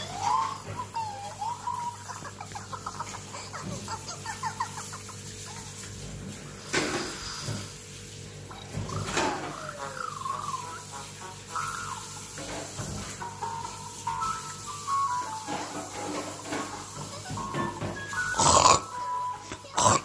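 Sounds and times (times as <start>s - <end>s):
cartoon birds chirping and clucking: 8.5s - 12.7s.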